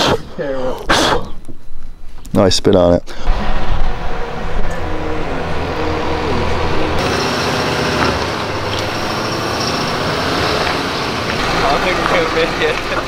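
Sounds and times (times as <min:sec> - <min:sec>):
engine running steadily: 0:03.1 - 0:13.0.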